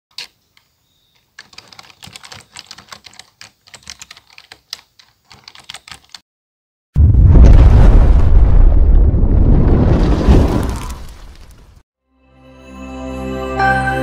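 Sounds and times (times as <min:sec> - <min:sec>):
typing on computer keyboard: 0:01.2 - 0:06.2.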